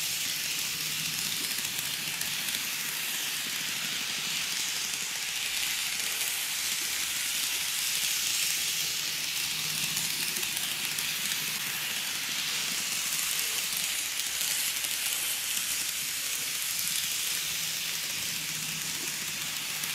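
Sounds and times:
model train wheels hissing on rails: 0:00.0 - 0:19.9.

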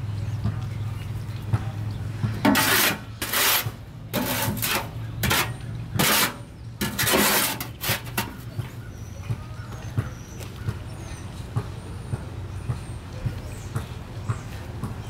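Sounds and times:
shovel scraping in a wheelbarrow: 0:02.4 - 0:08.6.

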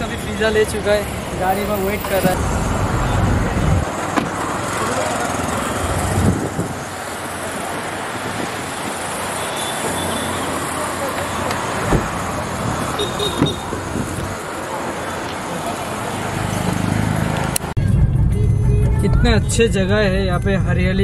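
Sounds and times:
hum of traffic and idling engines: 0:00.0 - 0:21.0
deep engine rumble: 0:02.3 - 0:07.0, 0:17.8 - 0:21.0.

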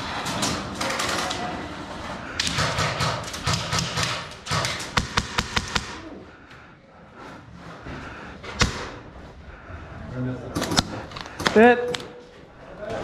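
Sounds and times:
airsoft gunshots: 0:02.4 - 0:06.0.

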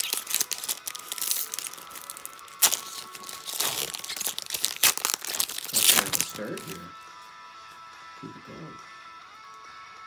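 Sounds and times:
foil wrapper tearing and crinkling: 0:00.0 - 0:06.8.

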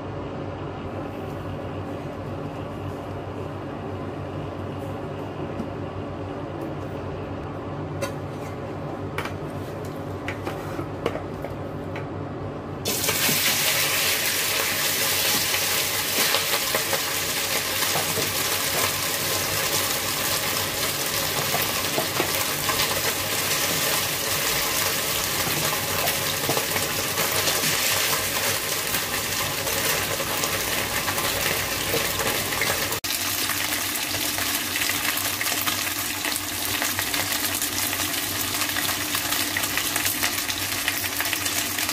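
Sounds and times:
ribs sizzling in hot oil: 0:12.9 - 0:41.9.

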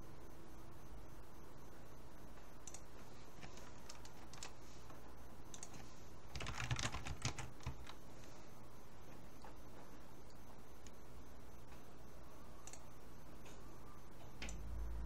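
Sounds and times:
steady low hum: 0:00.0 - 0:15.0
keyboard typing: 0:02.6 - 0:04.6, 0:05.5 - 0:08.0, 0:12.6 - 0:12.9.

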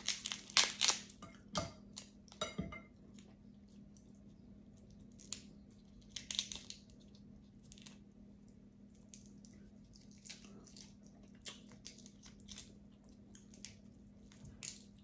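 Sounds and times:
crab shells cracking: 0:00.0 - 0:01.3, 0:05.0 - 0:08.0, 0:09.0 - 0:15.0
low steady hum: 0:00.0 - 0:15.0.

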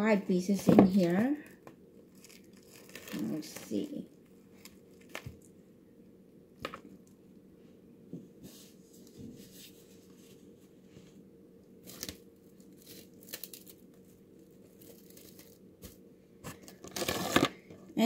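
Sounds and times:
plastic cling wrap crinkling: 0:00.6 - 0:05.6, 0:11.8 - 0:17.6.

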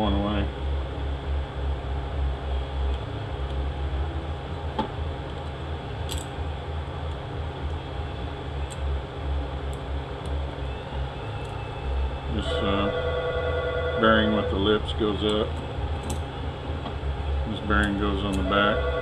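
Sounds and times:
steady low machinery hum: 0:00.0 - 0:19.0
small metal parts clicking: 0:05.3 - 0:06.3.

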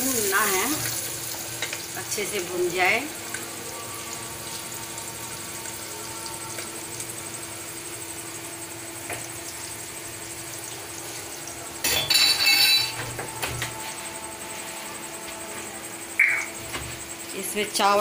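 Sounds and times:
onion sizzling in oil: 0:00.0 - 0:13.1
loud ringing sound: 0:11.6 - 0:13.5.

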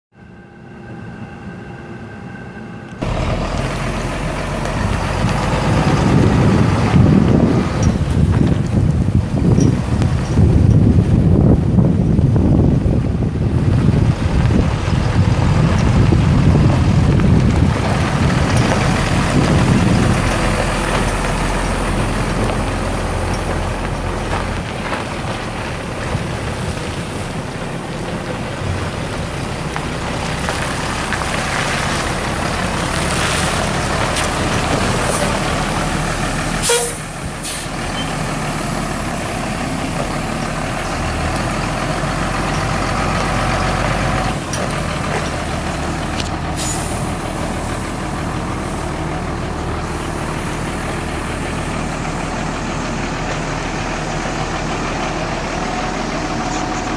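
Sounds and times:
diesel truck engine rumble: 0:00.1 - 0:56.9
sharp air hiss: 0:36.6 - 0:37.8, 0:46.5 - 0:47.8.

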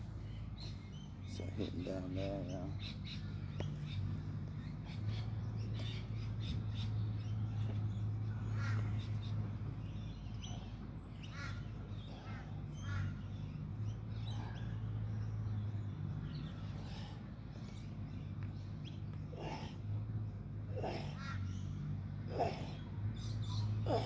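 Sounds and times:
steady low hum: 0:00.0 - 0:24.0
crows cawing: 0:08.5 - 0:09.2, 0:11.2 - 0:13.4, 0:20.8 - 0:22.8.

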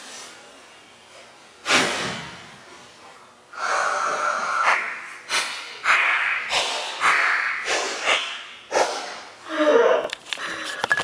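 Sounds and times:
person breathing out heavily: 0:03.6 - 0:05.8.

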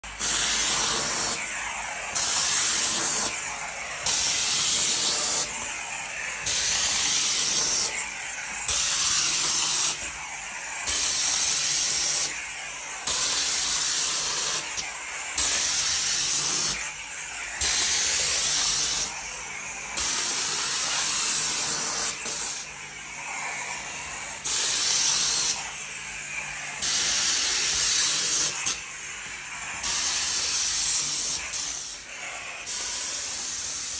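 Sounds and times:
steam mop hissing in pulses: 0:00.0 - 0:33.9.

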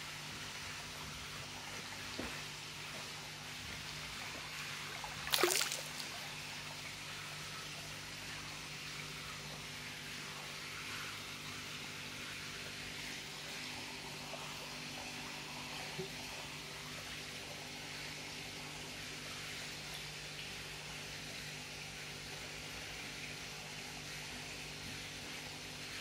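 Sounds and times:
faint pump hum: 0:00.0 - 0:26.0
water trickling into fish tank: 0:00.0 - 0:26.0
fish splashing water surface: 0:04.9 - 0:06.5.

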